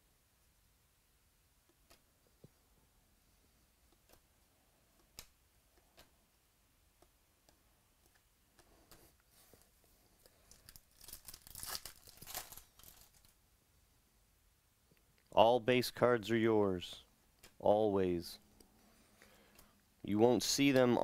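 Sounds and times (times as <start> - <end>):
pack wrapper tearing and crinkling: 10.5 - 13.4.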